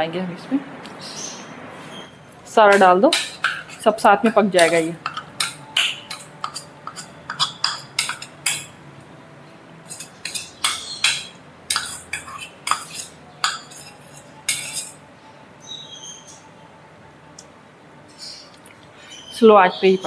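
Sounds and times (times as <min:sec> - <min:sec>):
metal spoon scraping cookware: 0:02.7 - 0:08.8, 0:09.8 - 0:15.0.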